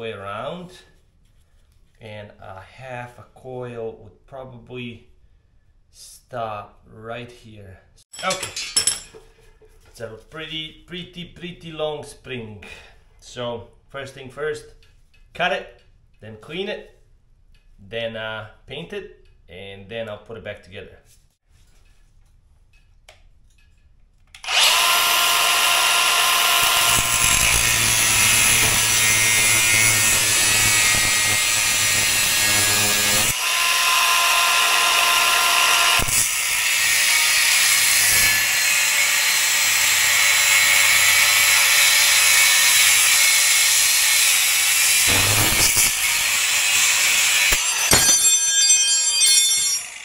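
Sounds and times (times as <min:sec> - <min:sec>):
power cutting tool whining: 0:24.4 - 0:50.0.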